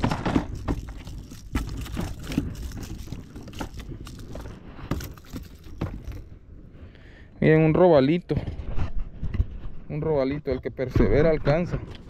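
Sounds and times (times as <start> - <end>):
handling knocks and clicks: 0.0 - 6.3.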